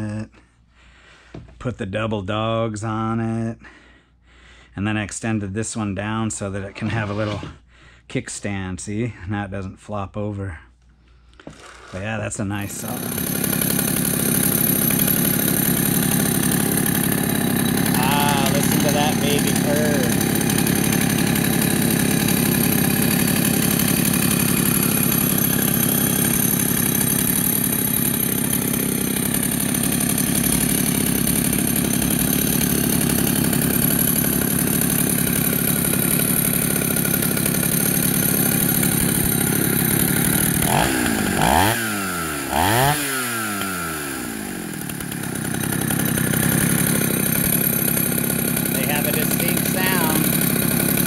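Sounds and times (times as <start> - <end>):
chainsaw revving: 6.5 - 7.6, 11.4 - 51.0
chainsaw idling: 11.4 - 51.0.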